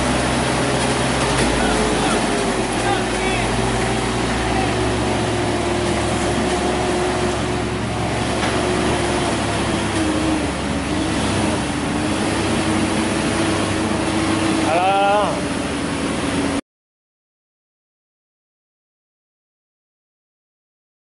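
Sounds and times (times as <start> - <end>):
road noise: 0.0 - 16.6
truck diesel engine under load: 0.0 - 16.6.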